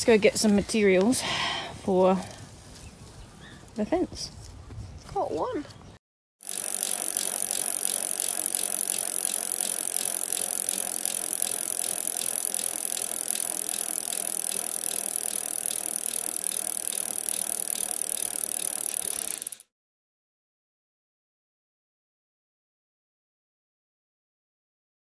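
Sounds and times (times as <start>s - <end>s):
pulleys rolling along steel cable: 6.4s - 19.7s.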